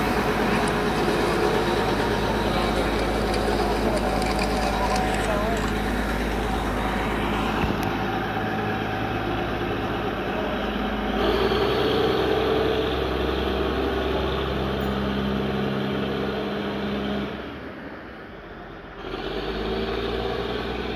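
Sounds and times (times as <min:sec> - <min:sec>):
diesel engine running: 0:00.0 - 0:20.9.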